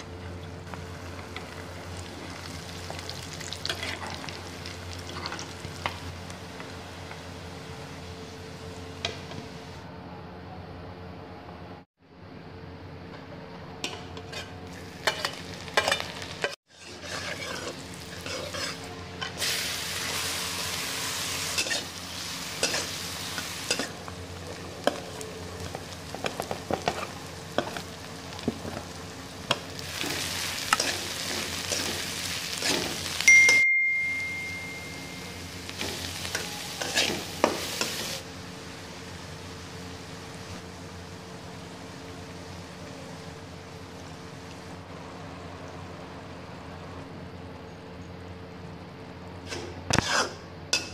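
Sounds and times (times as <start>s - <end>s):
vegetables sizzling in a wok: 0.0s - 9.8s, 13.8s - 50.9s
spatula scraping a pan: 13.9s - 16.1s, 16.7s - 19.4s, 21.4s - 23.0s, 36.8s - 38.1s, 49.5s - 50.4s
utensil ringing on metal pan: 33.3s - 35.3s.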